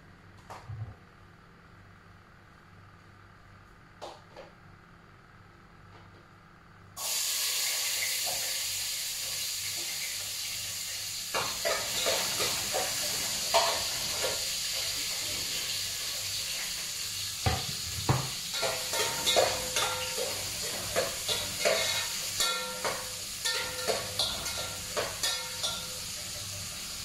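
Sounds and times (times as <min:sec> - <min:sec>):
food sizzling in hot oil: 0:07.0 - 0:27.0
spatula scraping a pot: 0:18.5 - 0:25.8.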